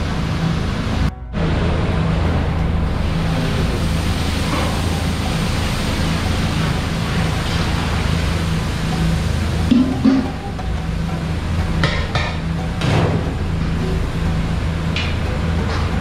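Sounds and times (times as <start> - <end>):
low hum and rushing noise: 0.0 - 16.0
water splashing into pot: 4.1 - 10.6.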